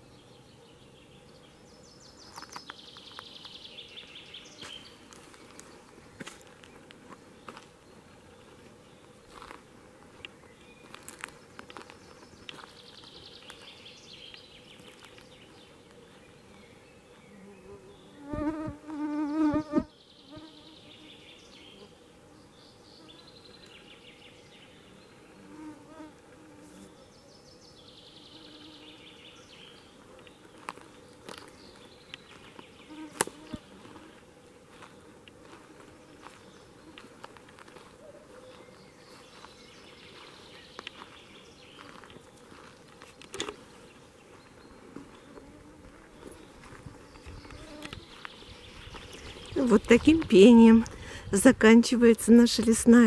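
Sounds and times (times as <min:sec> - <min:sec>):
songbird singing: 0:00.0 - 0:53.0
flying insect buzzing: 0:17.3 - 0:22.0, 0:28.1 - 0:29.2, 0:32.8 - 0:34.3, 0:45.2 - 0:48.2.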